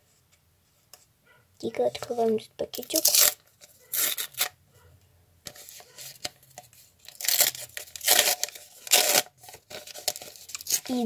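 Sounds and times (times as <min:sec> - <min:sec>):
paper tearing and crinkling: 0:02.8 - 0:04.5, 0:07.0 - 0:11.0.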